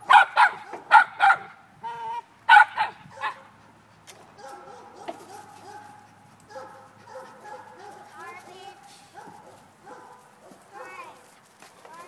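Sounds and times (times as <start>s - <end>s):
dog barking: 0.0s - 1.5s, 2.5s - 3.5s, 4.4s - 8.2s, 9.1s - 11.1s.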